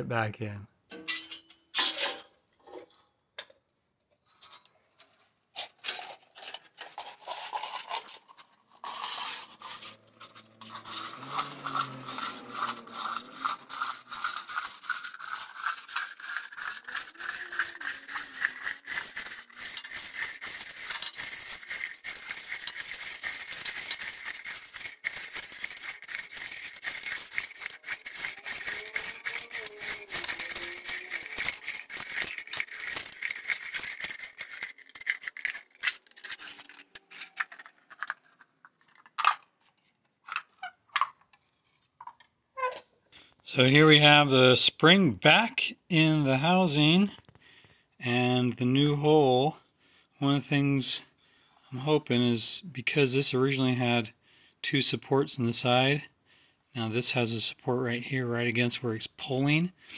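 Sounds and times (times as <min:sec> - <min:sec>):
spring reel clicking and scraping: 0:04.4 - 0:42.8.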